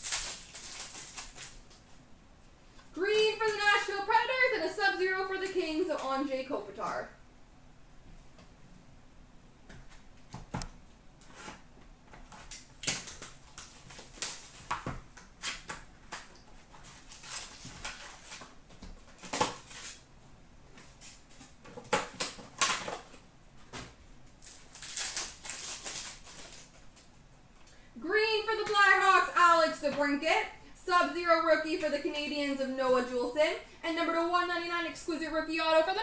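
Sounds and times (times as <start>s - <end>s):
card pack wrapper tearing: 0.0s - 1.6s, 12.4s - 14.8s, 15.4s - 20.0s, 24.4s - 26.9s
cardboard crackling and rustling: 0.0s - 1.9s, 11.2s - 20.0s, 20.7s - 27.1s.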